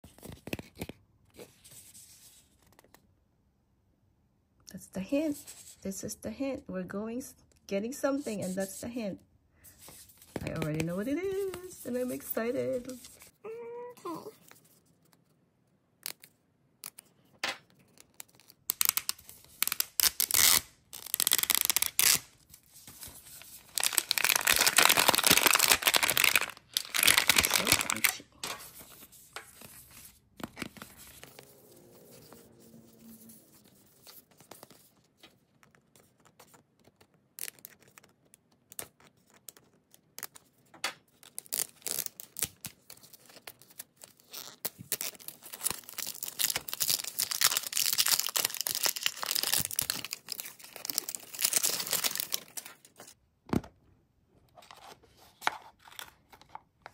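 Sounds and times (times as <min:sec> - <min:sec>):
plastic wrapper crinkling and tearing: 0:16.0 - 0:28.8, 0:33.8 - 0:53.2.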